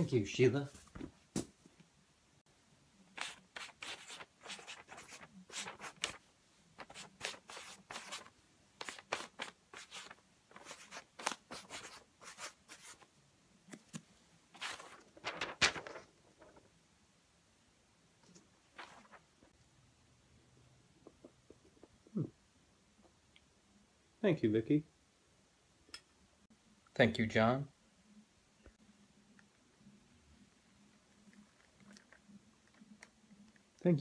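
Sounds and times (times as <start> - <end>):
clothing and paper rustling: 3.2 - 13.0, 13.7 - 16.7, 18.3 - 19.5.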